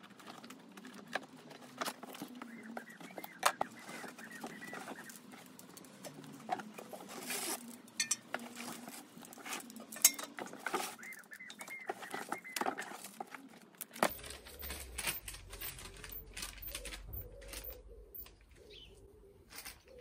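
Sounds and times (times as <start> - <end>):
rustling: 0.0 - 20.0
clicks and light knocks: 7.7 - 18.5
low hum: 14.0 - 19.8.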